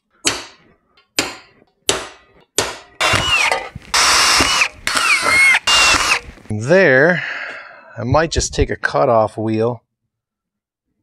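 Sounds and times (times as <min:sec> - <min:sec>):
cordless power tool whine: 0:03.0 - 0:06.3.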